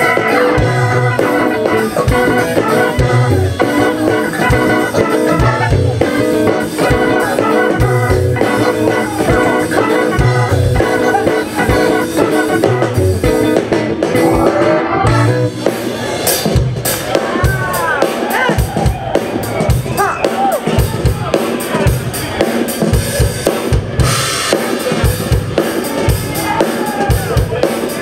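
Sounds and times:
music with steady beat and bass: 0.0s - 28.0s.

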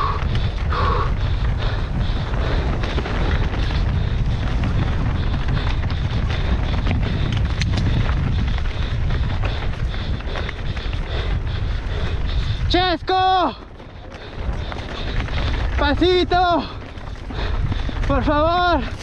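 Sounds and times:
bike rattling: 0.0s - 19.0s
wind buffeting microphone: 0.0s - 19.0s
tyres crunching over dirt and rock: 12.2s - 19.0s.

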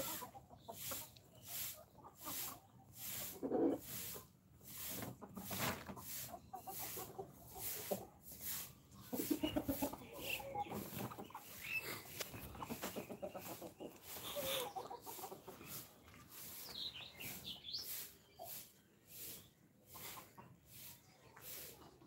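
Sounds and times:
chicken squawks: 0.0s - 4.2s, 5.2s - 15.8s
chickens clucking: 0.0s - 22.0s.

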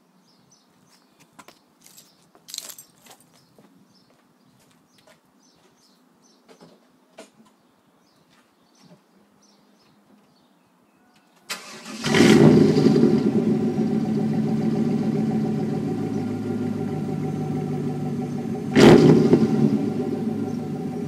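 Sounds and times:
engine starting and idling: 11.5s - 18.0s.

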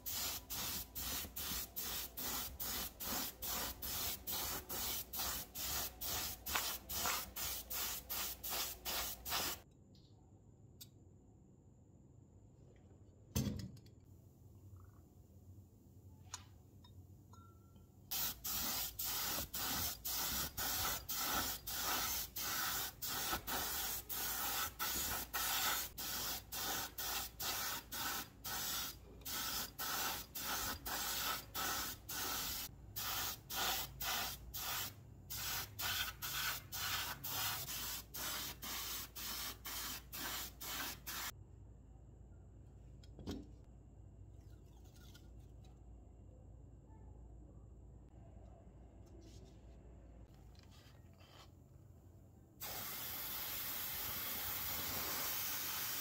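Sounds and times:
spray gun hissing: 0.0s - 9.6s, 18.1s - 41.3s, 52.6s - 56.0s.

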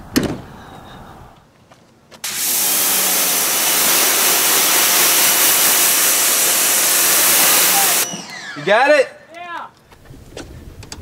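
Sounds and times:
pressure washer spraying: 2.2s - 8.5s.

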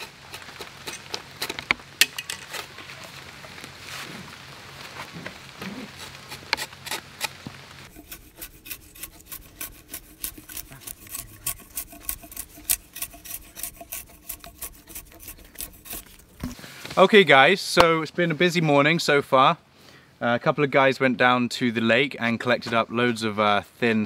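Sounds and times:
drawknife scraping wood: 6.0s - 16.6s.

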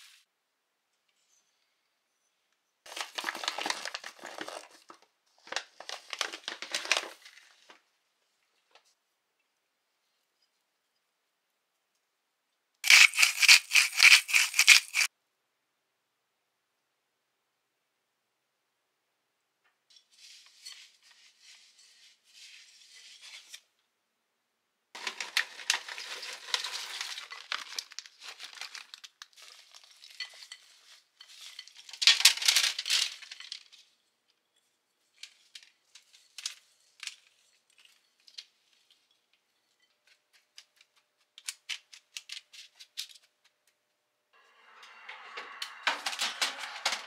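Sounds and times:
rustling and crinkling: 2.9s - 9.0s, 12.8s - 15.1s, 25.0s - 43.9s.

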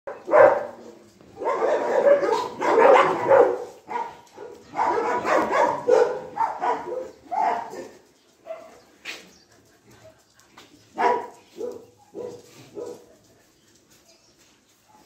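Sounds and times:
dogs barking: 0.1s - 9.0s, 10.9s - 13.3s.

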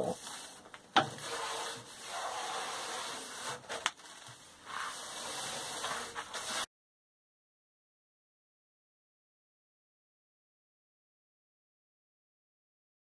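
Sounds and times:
brushing sawdust on metal table: 0.0s - 6.7s.

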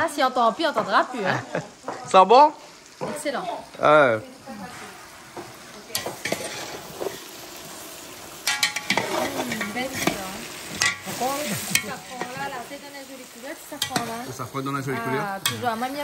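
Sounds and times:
food sizzling: 0.0s - 16.0s
metal spoon stirring and scraping: 4.6s - 12.8s, 13.7s - 16.0s.

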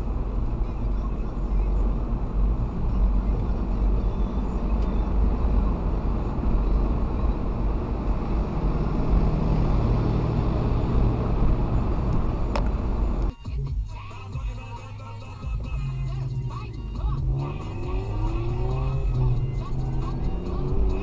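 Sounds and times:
low hum: 0.0s - 13.3s
car road and engine noise: 0.0s - 21.0s.

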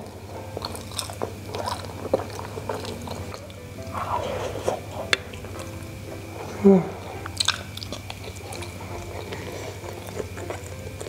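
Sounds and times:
close chewing with mouth clicks: 0.0s - 11.0s
person humming briefly: 6.4s - 7.3s.

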